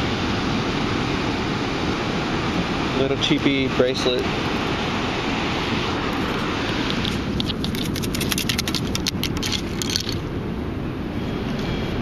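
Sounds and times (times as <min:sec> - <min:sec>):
steady low rumble: 0:00.0 - 0:12.0
metal scoop clicks and rattles: 0:06.9 - 0:10.2.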